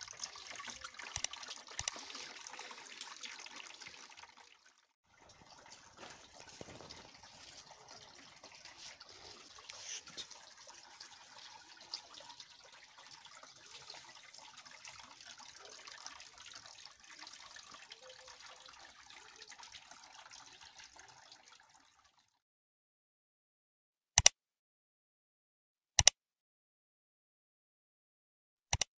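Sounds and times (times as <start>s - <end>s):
fountain water trickling: 0.0s - 22.2s.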